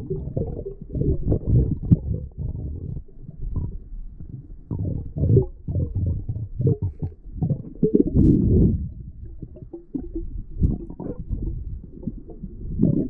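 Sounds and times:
underwater rumbling and sloshing: 0:00.0 - 0:13.0.

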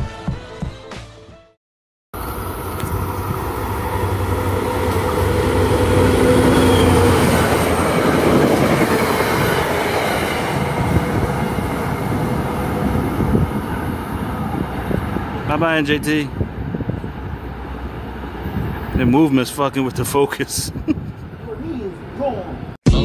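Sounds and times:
locomotive engine hum: 0:02.2 - 0:19.0
train wheels rumbling on rails: 0:02.2 - 0:20.1.

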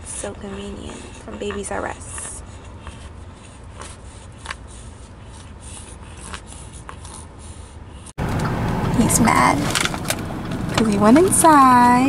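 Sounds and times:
car cabin rumble: 0:08.2 - 0:12.0.

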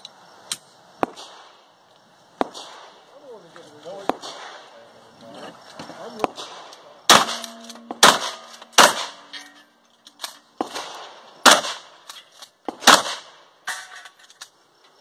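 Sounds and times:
gunshots: 0:02.4 - 0:03.0, 0:04.0 - 0:04.8, 0:06.2 - 0:09.3, 0:10.6 - 0:12.1, 0:12.7 - 0:13.4
steel target ringing: 0:07.1 - 0:09.8.

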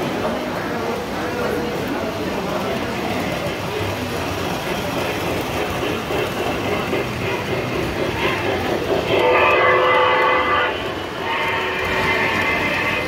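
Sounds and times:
model train wheels clattering: 0:00.0 - 0:13.0
train whistle chord: 0:09.1 - 0:13.0.

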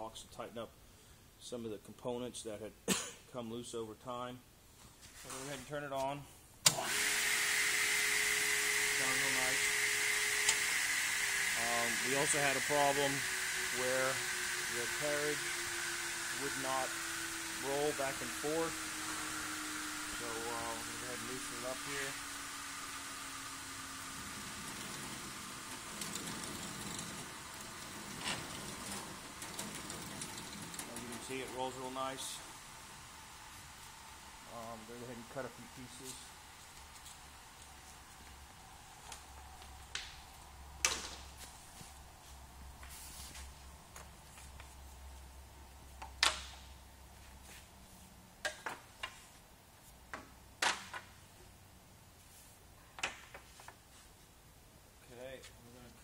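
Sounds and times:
machine hiss and hum: 0:06.7 - 0:45.6.

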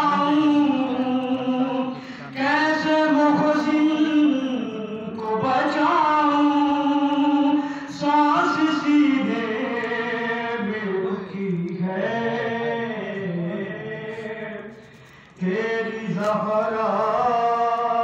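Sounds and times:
man chanting a lament: 0:00.0 - 0:14.8.

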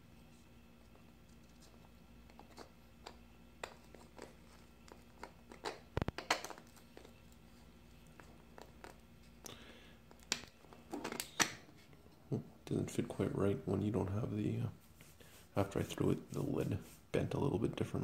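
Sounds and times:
scratchy rub: 0:14.8 - 0:17.1.

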